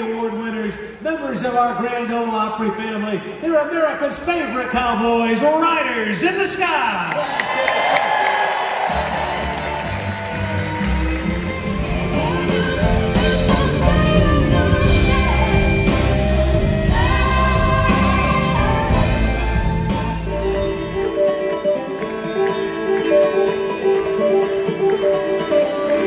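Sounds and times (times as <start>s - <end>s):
country band playing: 8.8s - 26.0s
plucked guitar: 9.1s - 26.0s
person singing: 11.4s - 20.6s.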